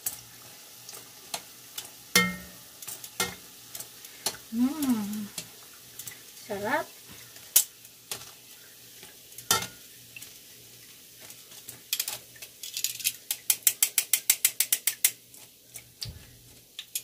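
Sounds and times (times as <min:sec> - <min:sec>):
tongs clicking against frying pan: 0:13.1 - 0:15.8.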